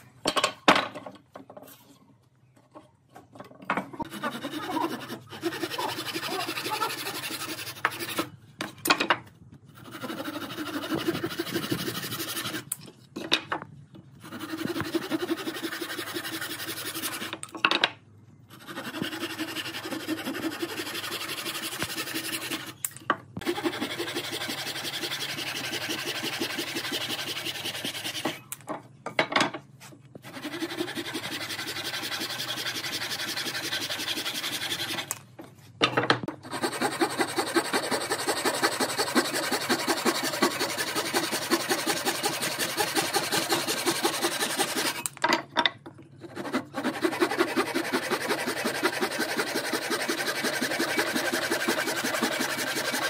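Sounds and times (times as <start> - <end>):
handsaw cutting wood: 4.0 - 8.3, 9.8 - 12.7, 14.2 - 17.3, 18.5 - 22.8, 23.4 - 28.4, 30.2 - 35.1, 36.4 - 45.1, 46.2 - 53.0.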